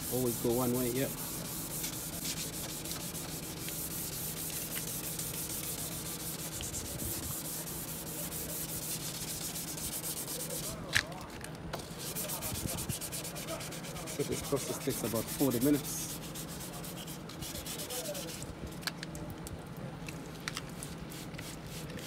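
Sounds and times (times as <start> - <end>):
sandpaper rubbing on plastic: 0.0 - 10.9, 11.8 - 18.5.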